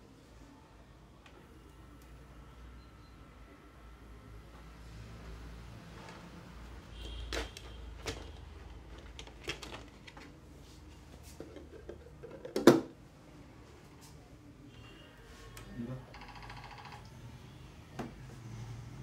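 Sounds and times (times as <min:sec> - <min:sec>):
clicks and knocks of handling: 0:07.3 - 0:10.4.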